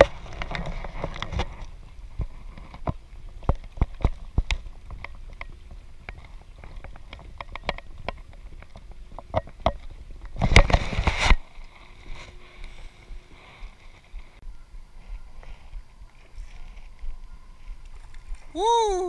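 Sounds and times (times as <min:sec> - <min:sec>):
kayak knocks and clicks: 0:02.2 - 0:11.3.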